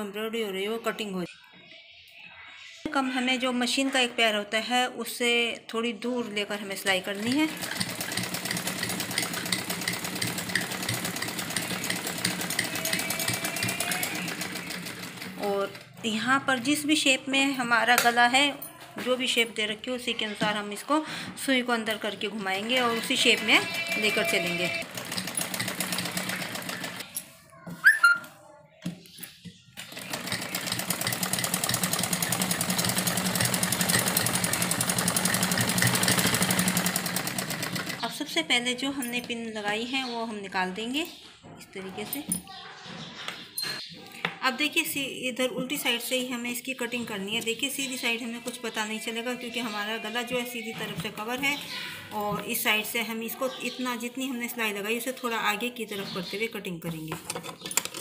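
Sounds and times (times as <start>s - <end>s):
sewing machine stitching: 7.0s - 16.0s, 22.5s - 27.2s, 29.8s - 38.2s.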